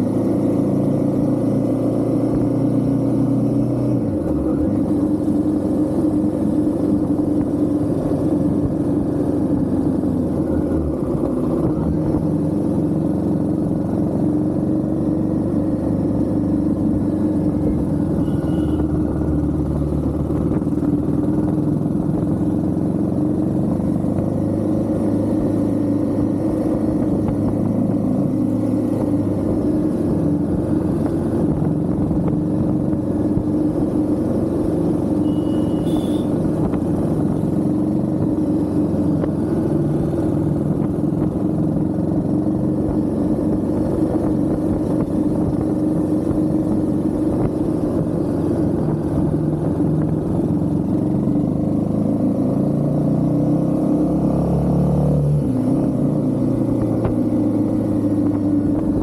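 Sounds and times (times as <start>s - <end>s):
motorcycle engine running: 0.0s - 53.5s, 56.0s - 59.0s.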